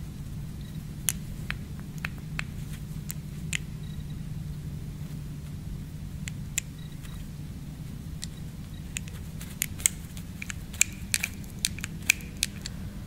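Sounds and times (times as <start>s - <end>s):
injection pump clicking: 8.2s - 12.8s.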